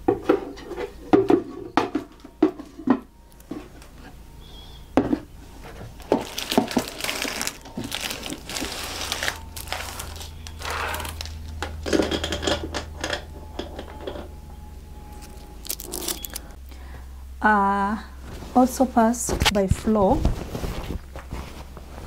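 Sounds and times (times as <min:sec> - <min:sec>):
crinkling and rustling: 0:05.2 - 0:14.3, 0:15.1 - 0:16.6, 0:18.2 - 0:22.0.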